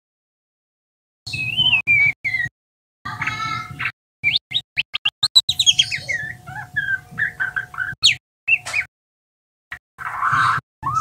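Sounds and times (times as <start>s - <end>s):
bird singing: 1.3s - 2.5s, 3.1s - 8.9s, 10.0s - 11.0s.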